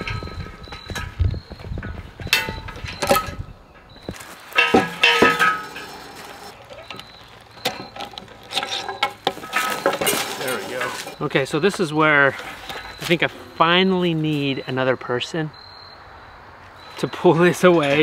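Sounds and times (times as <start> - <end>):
metal clanking and chain rattle: 1.8 - 11.4.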